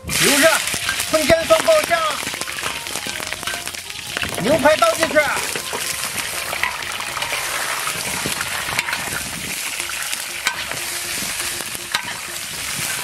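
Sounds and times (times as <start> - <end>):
meat sizzling in hot oil: 0.0 - 13.0
spatula clacking against wok: 5.0 - 13.0.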